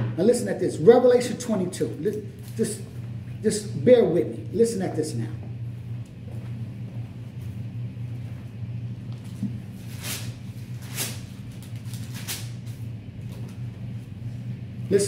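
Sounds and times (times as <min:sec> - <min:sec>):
low hum: 0:00.0 - 0:15.0
pages turning: 0:09.2 - 0:13.6.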